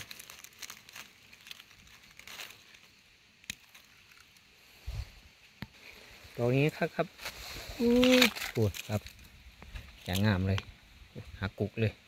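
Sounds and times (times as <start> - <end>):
dry leaves crackling and rustling: 0.0 - 4.5, 5.8 - 10.6.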